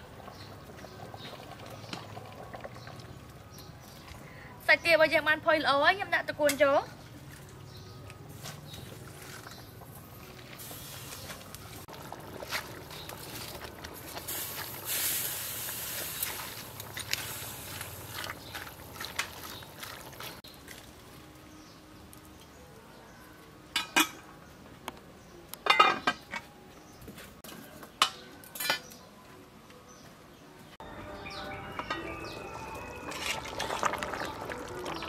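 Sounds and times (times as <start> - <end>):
liquid soup sloshing: 16.2 - 20.4, 32.8 - 35.0.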